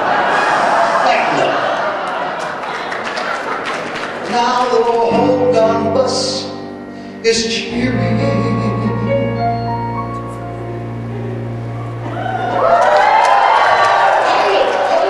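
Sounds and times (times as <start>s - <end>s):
big band holding chords: 5.0s - 14.3s.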